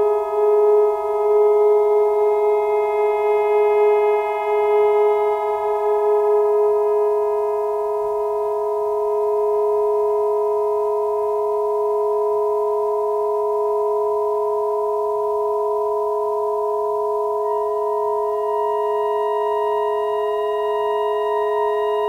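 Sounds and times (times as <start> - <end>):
faint high tones: 17.3 - 22.0.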